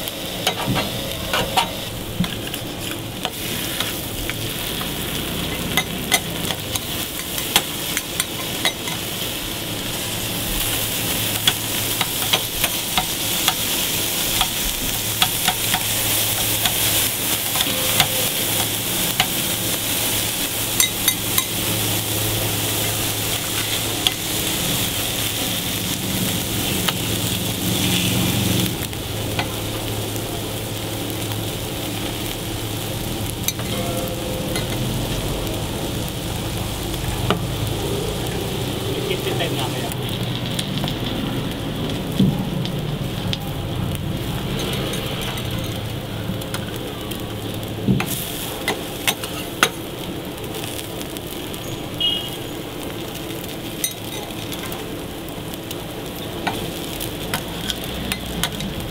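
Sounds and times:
food sizzling on griddle: 0.0s - 58.9s
metal spatula scraping steel plate: 17.4s - 18.8s.

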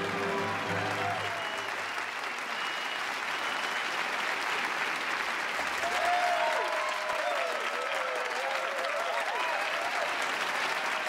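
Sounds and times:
voices cheering and calling out: 0.0s - 1.8s, 5.8s - 10.2s
many hands clapping: 0.0s - 11.0s.

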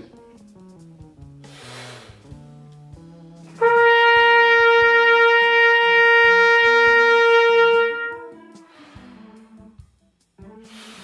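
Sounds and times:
trumpet long note: 3.5s - 9.6s.

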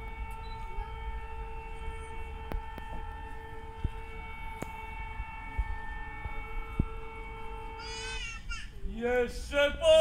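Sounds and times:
siren steady tone: 0.0s - 8.4s
wind rumble on microphone: 1.8s - 7.8s.

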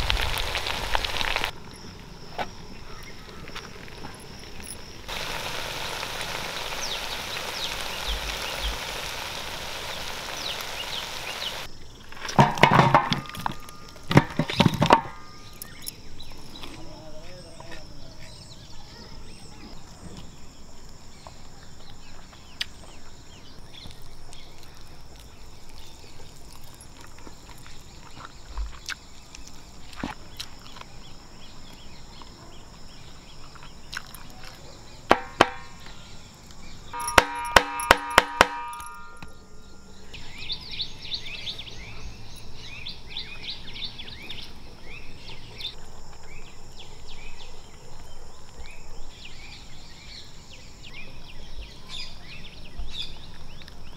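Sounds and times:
birds chirping: 0.0s - 12.1s, 13.6s - 53.9s
high insect drone: 0.0s - 12.2s, 15.0s - 53.9s
sharp ringing strikes: 37.0s - 40.7s.

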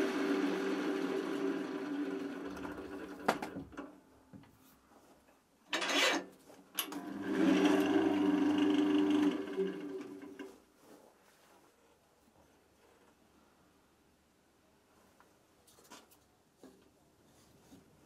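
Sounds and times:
wood lathe running: 0.0s - 3.6s, 6.9s - 10.5s.

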